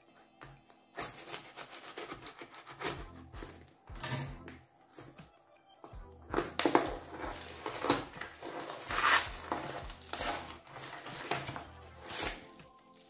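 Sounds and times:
packaging crinkling and tearing: 0:01.0 - 0:03.6, 0:06.3 - 0:13.0.

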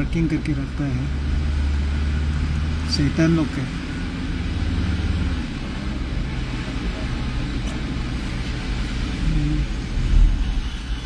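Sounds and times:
car driving on wet road: 0:00.0 - 0:11.0.

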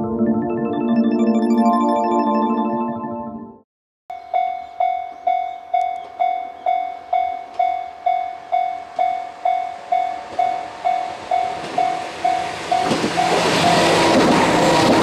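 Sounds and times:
level crossing alarm dinging: 0:04.2 - 0:14.2
train running noise: 0:07.0 - 0:15.0.

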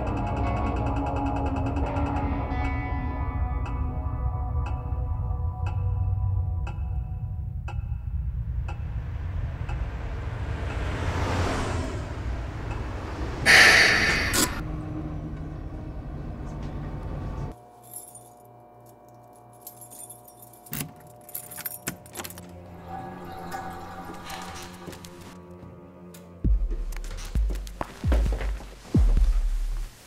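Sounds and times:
bus engine rumble: 0:07.5 - 0:17.6
loud air hiss: 0:13.4 - 0:14.6
faint steady musical tones: 0:17.5 - 0:26.7
keys jangling: 0:17.7 - 0:22.6.

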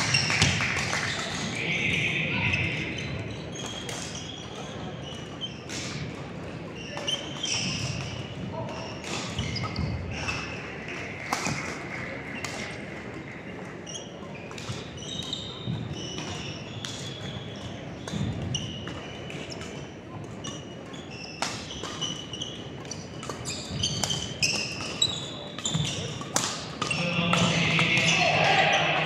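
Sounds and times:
shoes squeaking on floor: 0:00.0 - 0:01.5, 0:02.1 - 0:06.1, 0:06.7 - 0:11.6, 0:12.6 - 0:29.0
murmur of voices: 0:00.0 - 0:23.4, 0:24.0 - 0:29.0
racket hitting shuttlecock: 0:25.6 - 0:28.8.

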